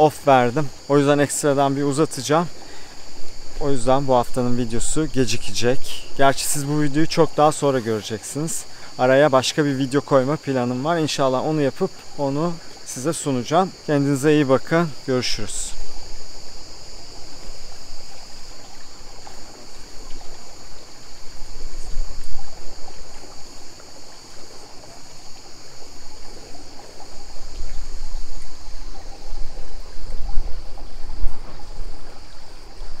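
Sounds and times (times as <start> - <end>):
high insect chorus: 0.0 - 33.0
water trickling: 0.0 - 33.0
wind rumbling on microphone: 15.6 - 33.0.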